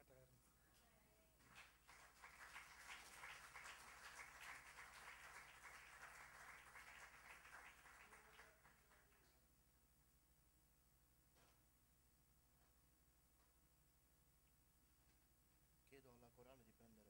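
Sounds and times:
congregation applauding: 0:01.4 - 0:09.4.

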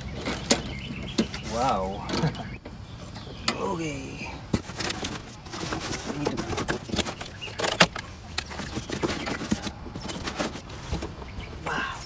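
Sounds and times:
cardboard scraping and rustling: 0:04.5 - 0:11.3.

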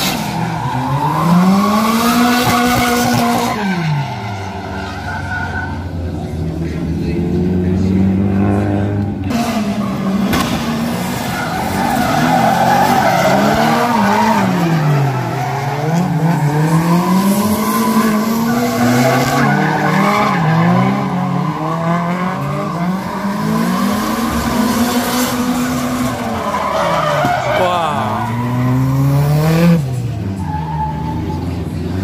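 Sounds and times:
car engine revving: 0:05.9 - 0:32.0
tyres squealing: 0:25.7 - 0:28.8.

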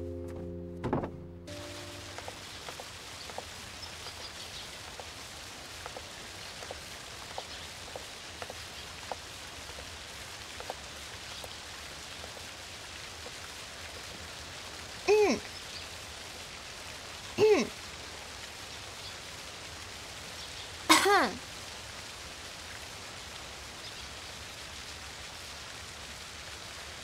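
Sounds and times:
small water drips: 0:01.8 - 0:27.0
short voice-like sound: 0:17.4 - 0:17.7.

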